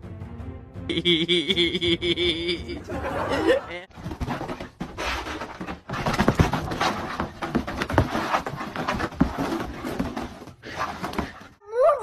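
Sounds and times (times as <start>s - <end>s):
dog paws scratching on carpet: 3.9s - 11.6s.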